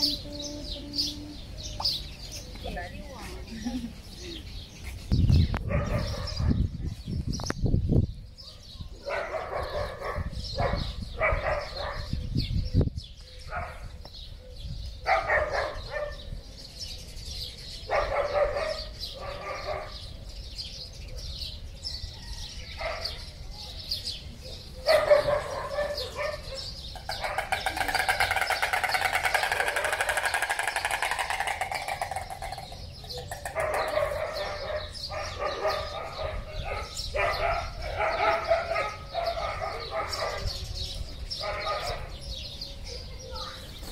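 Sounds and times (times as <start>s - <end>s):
dog-like barks and yelps: 15.0s - 16.2s, 17.9s - 20.0s, 24.8s - 27.6s, 33.5s - 40.5s.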